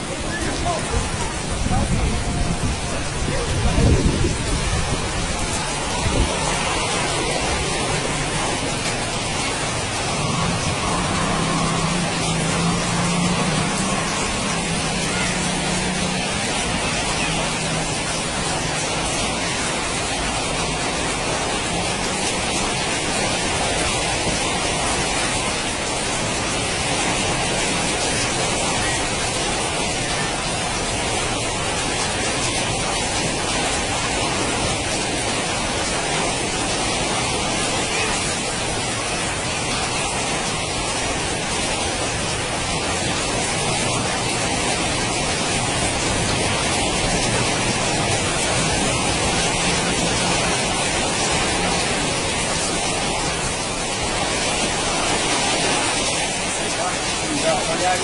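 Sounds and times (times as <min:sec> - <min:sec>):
strong wind rushing: 0:00.0 - 0:57.4.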